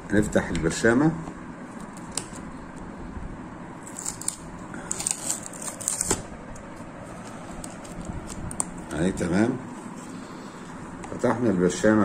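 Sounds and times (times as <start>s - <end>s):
foil seal crinkling and tearing: 3.8s - 6.2s, 7.2s - 9.1s.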